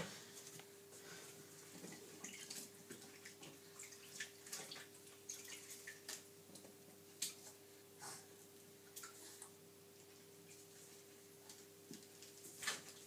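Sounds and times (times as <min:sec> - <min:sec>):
faint steady hum: 0:00.0 - 0:13.0
water splashing in a sink: 0:01.8 - 0:07.6, 0:11.9 - 0:13.0.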